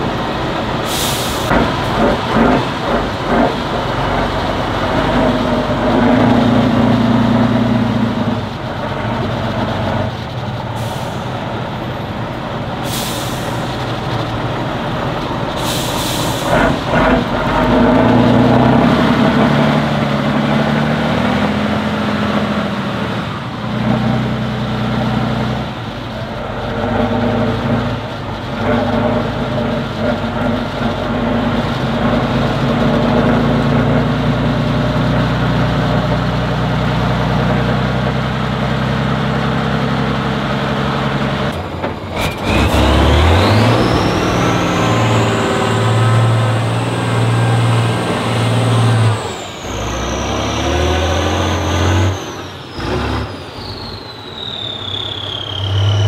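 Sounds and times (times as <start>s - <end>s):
diesel engine revving: 0.0s - 56.0s
air hiss: 0.8s - 1.5s, 12.8s - 13.8s, 15.6s - 16.6s.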